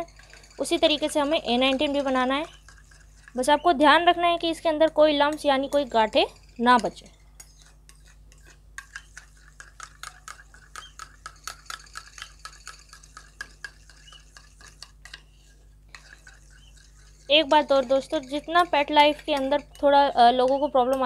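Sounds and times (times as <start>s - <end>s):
spoon clinking in metal bowl: 15.9s - 21.0s.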